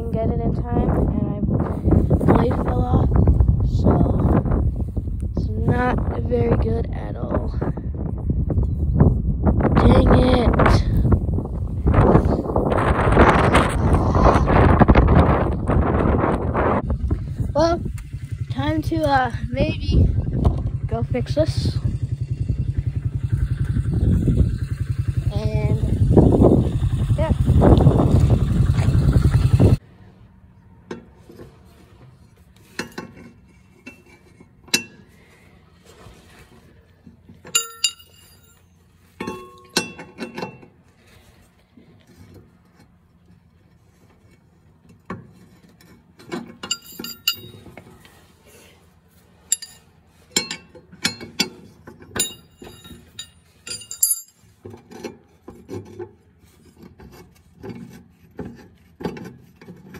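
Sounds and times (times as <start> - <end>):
lawn mower engine running: 10.9 - 59.9
metallic clinks and knocks: 37.4 - 40.8, 45.0 - 47.9, 49.4 - 56.0.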